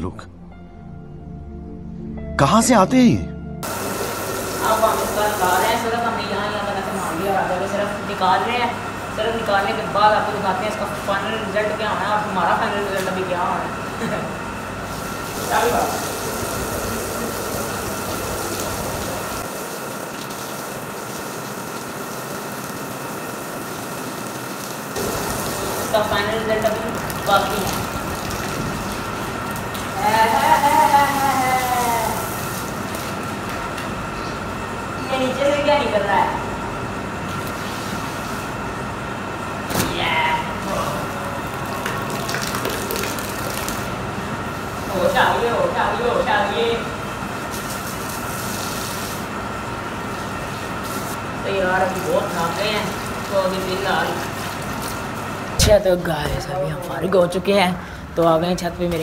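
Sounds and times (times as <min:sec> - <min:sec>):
hose water spraying on blanket: 0:03.6 - 0:06.5, 0:14.8 - 0:33.5, 0:47.3 - 0:55.7.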